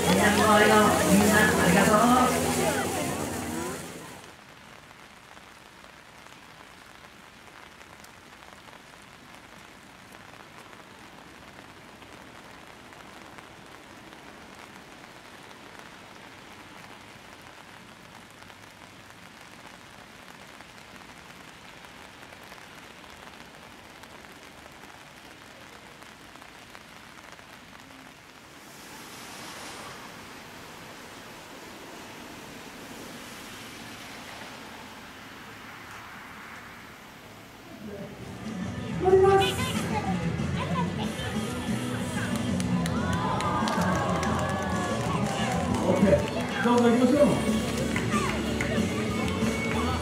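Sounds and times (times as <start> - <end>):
fine drips: 0.0 - 4.3
rain falling on wet paving: 0.0 - 50.0.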